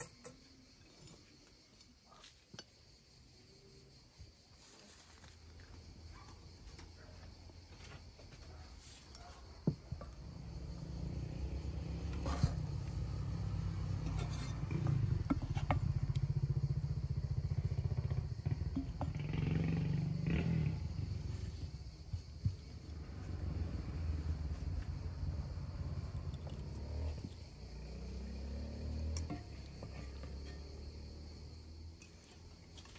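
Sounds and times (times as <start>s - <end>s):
deep uneven rumble: 9.7s - 27.8s.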